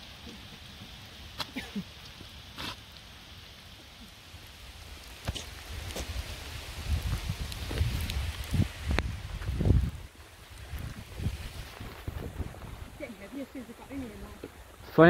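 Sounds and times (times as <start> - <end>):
heavy rain: 0.0 - 15.0
wind buffeting microphone: 5.2 - 14.9.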